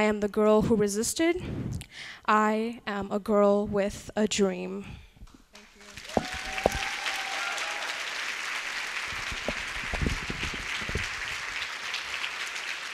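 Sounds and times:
large audience applauding: 5.6 - 12.9.

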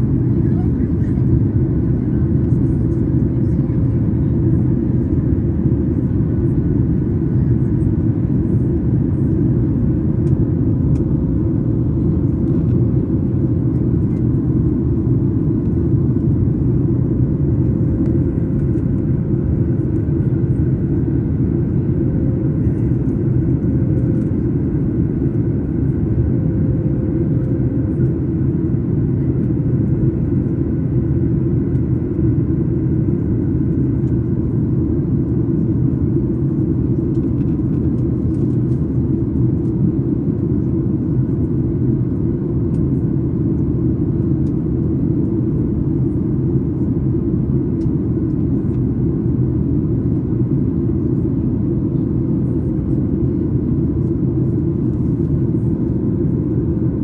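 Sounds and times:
jet engine and airflow roar: 0.0 - 57.0.

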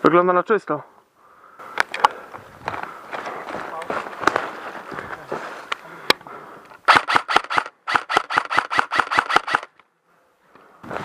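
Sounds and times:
airsoft rifle rapid firing: 6.9 - 9.8.

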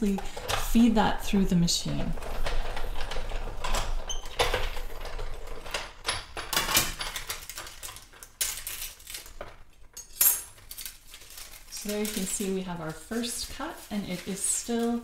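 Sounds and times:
paper rustling: 10.4 - 15.0.

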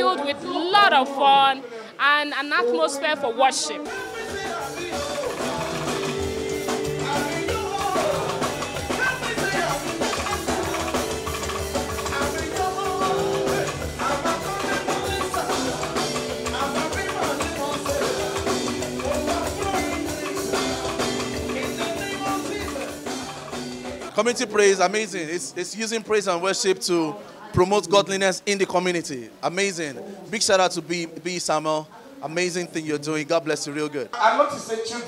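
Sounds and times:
gospel band with drums: 0.0 - 35.0
singing: 3.7 - 24.1.

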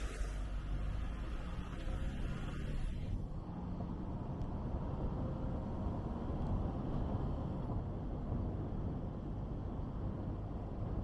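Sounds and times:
car driving on asphalt: 0.0 - 11.0.

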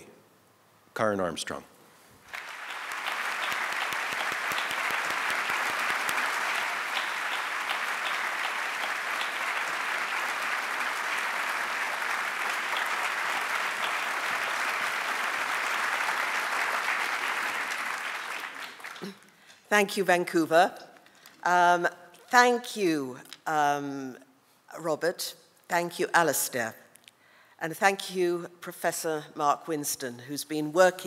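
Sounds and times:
audience applauding: 2.2 - 19.4.

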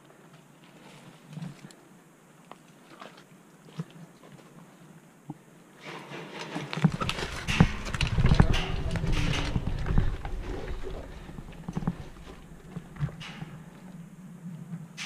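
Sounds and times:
low rumble of body movement: 6.7 - 15.0
footsteps on stairs: 6.9 - 14.0
knocks: 6.9 - 14.0.

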